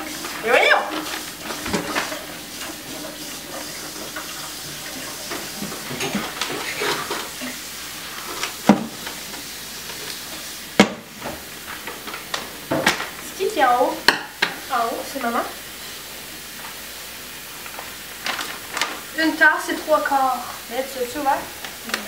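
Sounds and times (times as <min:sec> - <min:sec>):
plastic bag crinkling: 0:17.8 - 0:19.2.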